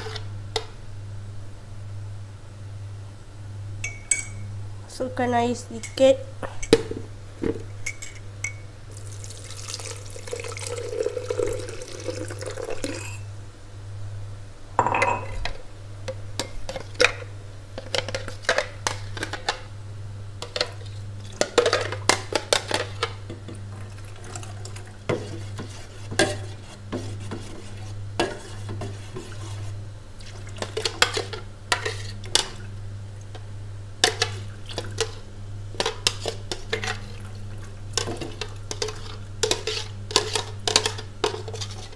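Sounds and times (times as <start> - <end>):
low steady hum: 0.0 - 41.9
spoon scraping blender jar: 25.1 - 29.8, 38.0 - 41.9.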